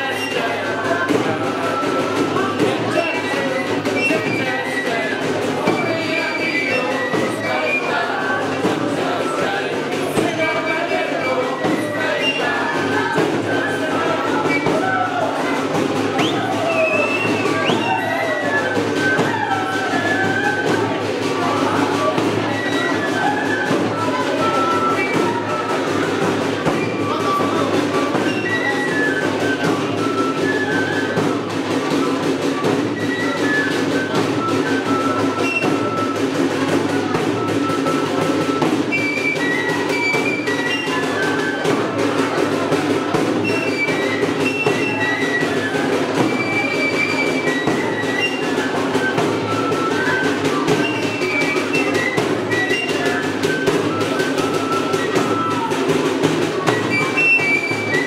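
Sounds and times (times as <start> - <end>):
high melody of short notes: 0.0 - 36.6
drums beating: 0.0 - 58.0.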